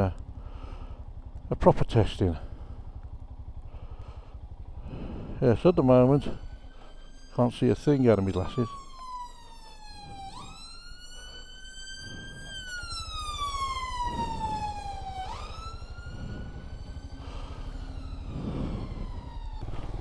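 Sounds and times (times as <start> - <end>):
motorcycle engine idling: 0.0 - 20.0
ambulance siren wailing: 4.3 - 20.0.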